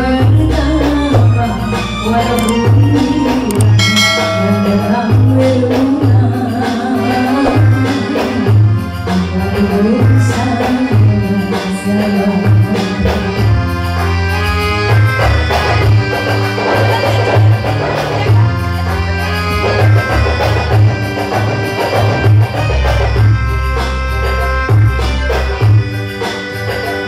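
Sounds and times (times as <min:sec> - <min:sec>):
woman singing: 0:00.0 - 0:13.4
keyboard accompaniment: 0:00.0 - 0:27.0
pulsing bass beat: 0:03.4 - 0:06.3.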